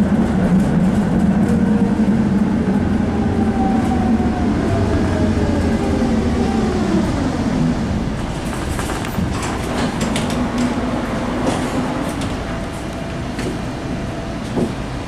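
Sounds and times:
tram low rumble: 0.0 - 15.0
wheels clicking on rails: 8.2 - 13.8.

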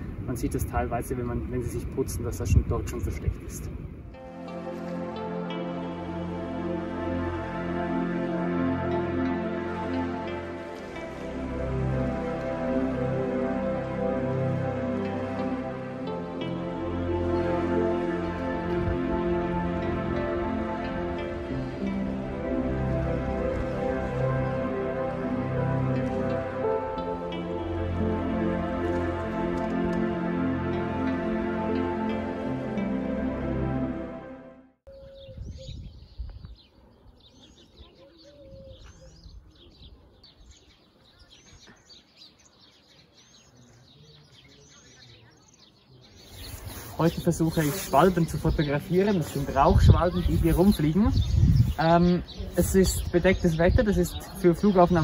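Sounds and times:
instrumental music with held notes: 4.1 - 34.8
swallows twittering: 34.9 - 55.0.

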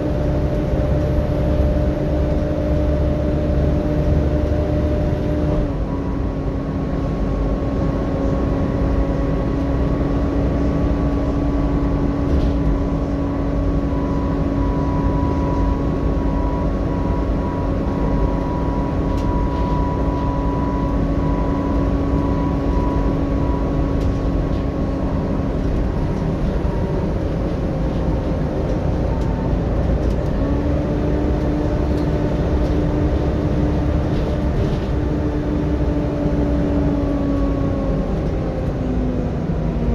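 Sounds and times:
bus engine and road rumble: 0.0 - 39.9
cooling fan whine: 0.0 - 39.9.

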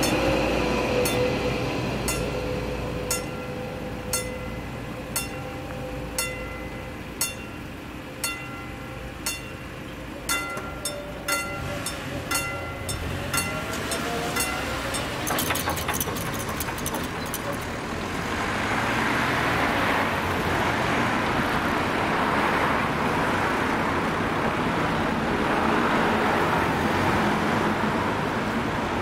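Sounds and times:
level crossing warning bell: 0.0 - 17.8
train rumbling: 0.0 - 29.0.

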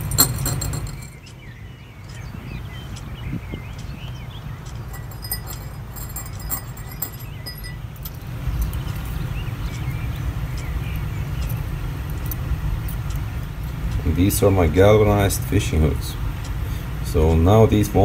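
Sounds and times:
metal hooks clinking: 0.0 - 1.2, 4.8 - 9.2.

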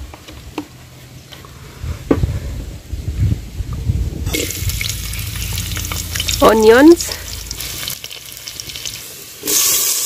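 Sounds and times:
wind buffeting microphone: 1.8 - 8.0
onions sizzling in hot oil: 4.3 - 10.0.

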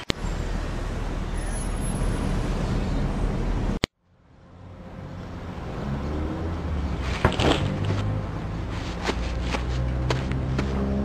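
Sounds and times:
car engine and road noise: 0.0 - 11.0.

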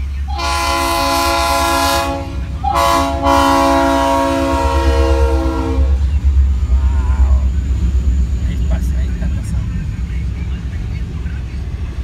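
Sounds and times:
low engine rumble: 0.0 - 12.0
locomotive air horn blasts: 0.3 - 6.0.

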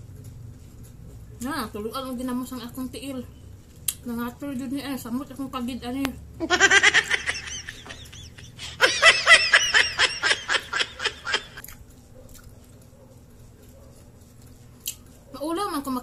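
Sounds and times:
person laughing: 6.4 - 11.6.

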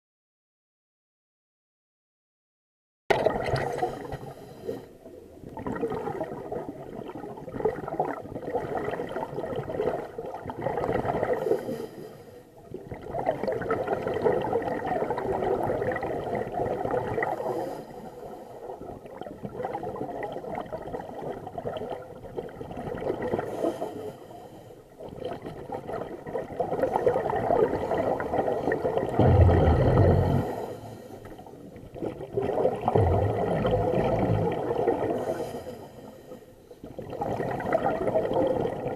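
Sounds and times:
underwater exhaust bubbles gurgling: 3.1 - 38.9
low knock: 29.2 - 30.4.

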